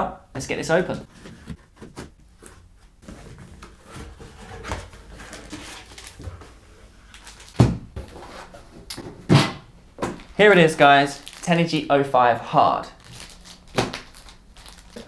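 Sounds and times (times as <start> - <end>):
cardboard and plastic rustling: 1.0 - 9.2, 11.2 - 11.6, 13.0 - 15.0
packing tape being slit: 13.0 - 15.0.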